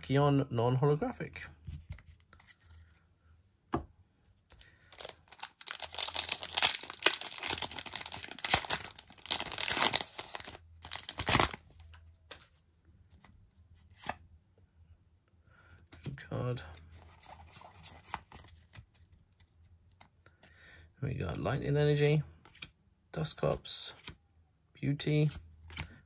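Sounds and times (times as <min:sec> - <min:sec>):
foil wrapper tearing and crinkling: 0:04.9 - 0:11.6.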